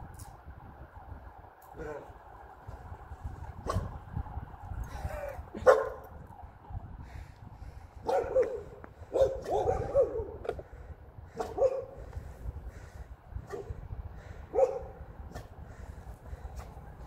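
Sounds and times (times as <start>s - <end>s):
wind rumble on microphone: 0.0s - 17.0s.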